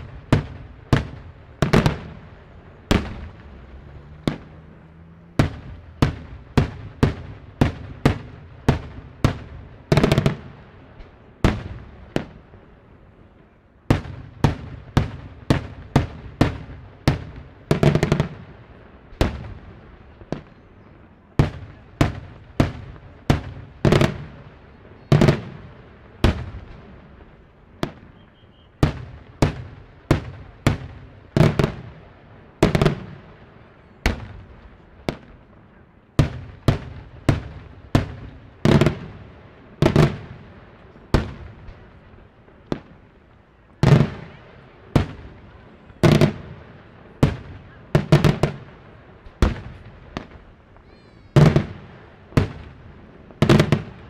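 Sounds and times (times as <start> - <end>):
fireworks bangs with echo: 0.0 - 54.0.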